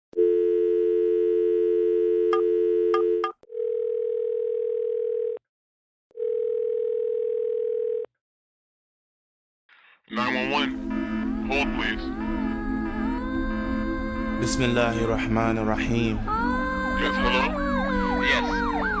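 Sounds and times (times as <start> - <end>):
telephone dial tone: 0.2 - 5.4, 6.1 - 8.1
telephone ringback tone: 0.2 - 5.4, 6.1 - 8.1.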